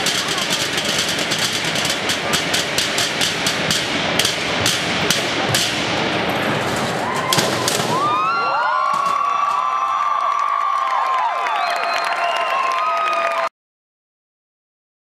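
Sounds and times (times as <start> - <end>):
drumsticks beating metal trash cans: 0.0 - 8.2
crowd cheering: 6.7 - 13.5
shrill whistles: 11.4 - 13.2.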